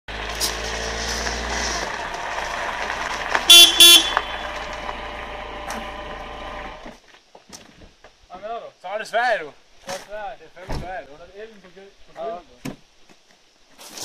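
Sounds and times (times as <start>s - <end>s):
car rolling over gravel: 0.1s - 7.3s
car horn toots: 3.4s - 5.1s.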